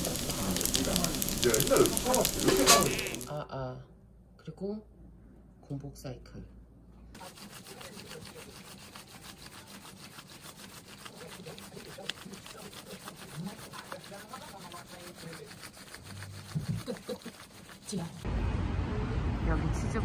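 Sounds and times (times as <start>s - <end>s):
exercise bike flywheel swishing: 7.2s - 18.3s.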